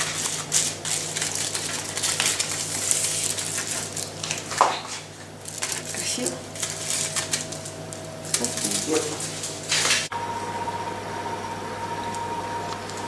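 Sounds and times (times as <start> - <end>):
foil crinkling: 0.0 - 10.1.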